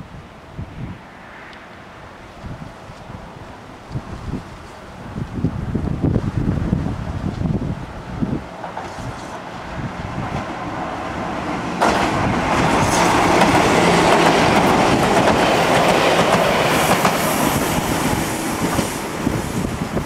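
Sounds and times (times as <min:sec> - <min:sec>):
train wheels clattering on rails: 0:08.5 - 0:09.5, 0:11.5 - 0:20.0.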